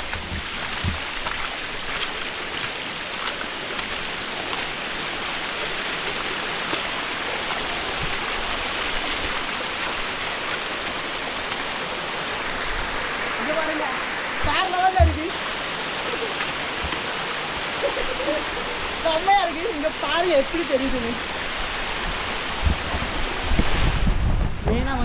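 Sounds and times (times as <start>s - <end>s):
water pouring down steps: 0.0s - 11.9s.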